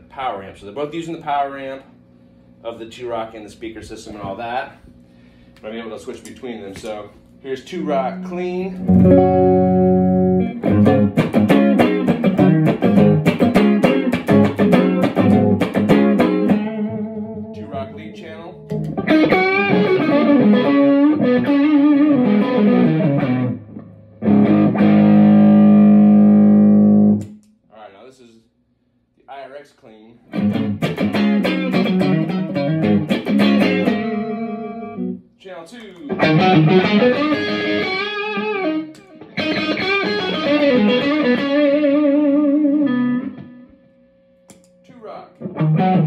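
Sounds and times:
electric guitar lead line: 0:07.8 - 0:27.4, 0:30.3 - 0:35.2, 0:36.1 - 0:44.2, 0:45.4 - 0:46.0.

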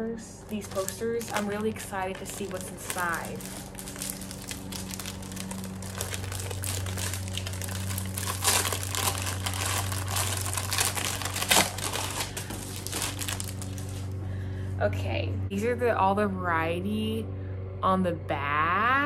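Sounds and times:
plastic wrapping crackling: 0:00.5 - 0:14.2.

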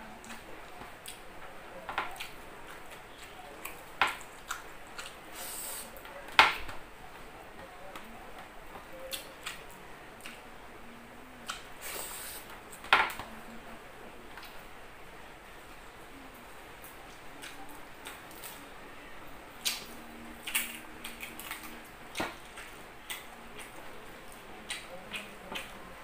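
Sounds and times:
short hissing noises: 0:05.3 - 0:05.9, 0:11.8 - 0:12.5
chewing clicks and smacks: 0:19.6 - 0:25.8.

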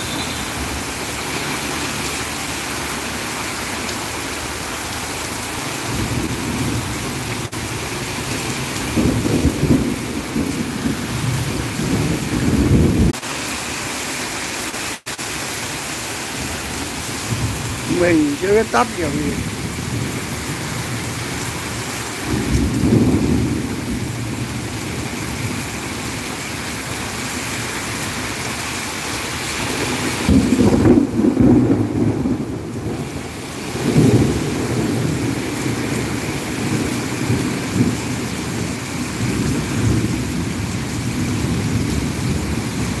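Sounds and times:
heavy rain pouring: 0:00.0 - 0:43.0
thunder rumbling: 0:05.7 - 0:13.2, 0:16.4 - 0:25.7, 0:29.6 - 0:43.0.

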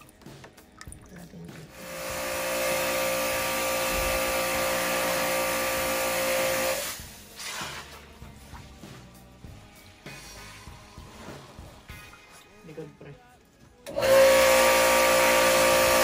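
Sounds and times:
pressure washer motor whine: 0:01.7 - 0:07.0, 0:13.8 - 0:16.0.

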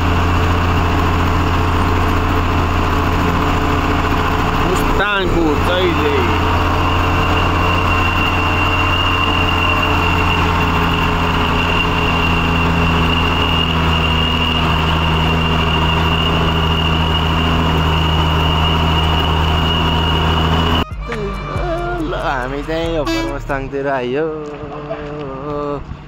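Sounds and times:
truck engine running: 0:00.0 - 0:26.0
thin high whine: 0:03.4 - 0:21.5.

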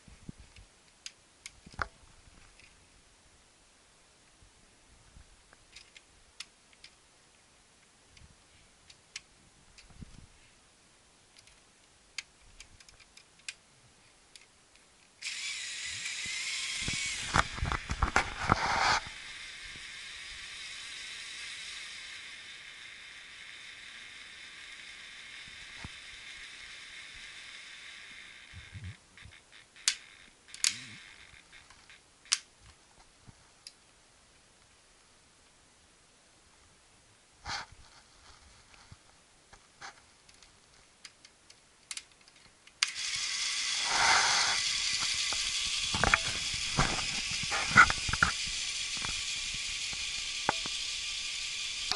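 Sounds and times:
small electric motor whine: 0:15.2 - 0:32.0, 0:42.8 - 0:51.9
sharp clicks: 0:29.2 - 0:32.5.

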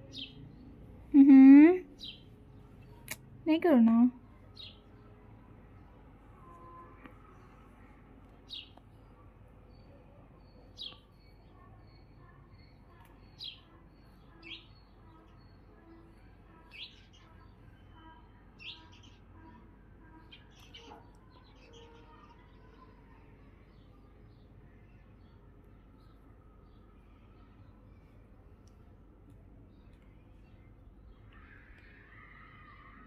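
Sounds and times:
small bird chirping: 0:00.0 - 0:03.3, 0:06.4 - 0:22.9.

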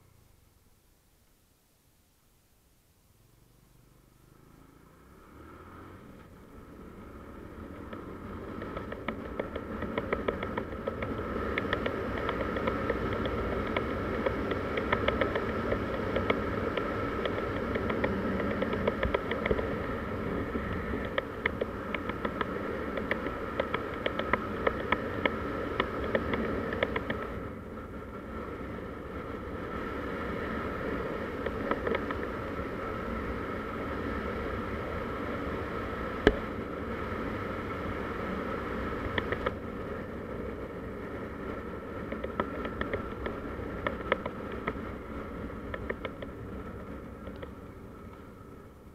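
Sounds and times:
motor scooter engine running: 0:03.6 - 0:48.9
wind noise: 0:07.4 - 0:48.9
small clicks: 0:07.7 - 0:19.7, 0:20.9 - 0:27.3, 0:39.1 - 0:39.6, 0:42.0 - 0:44.9.

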